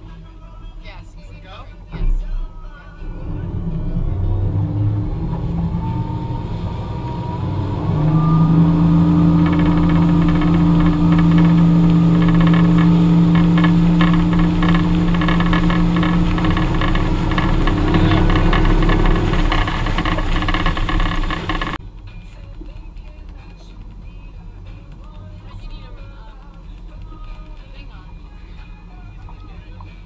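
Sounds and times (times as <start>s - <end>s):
motorboat engine: 1.0s - 30.0s
rushing water: 3.1s - 21.8s.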